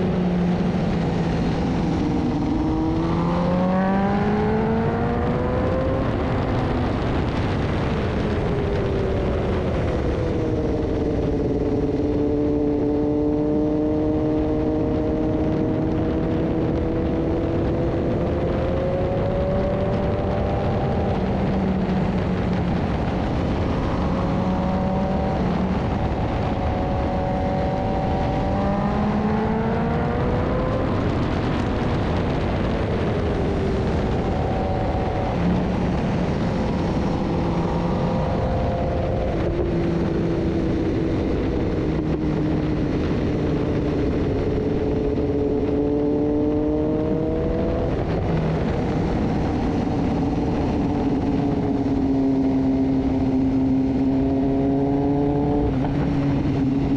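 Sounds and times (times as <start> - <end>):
motorcycle engine at speed: 0.0 - 56.9
wind rushing: 0.0 - 56.9.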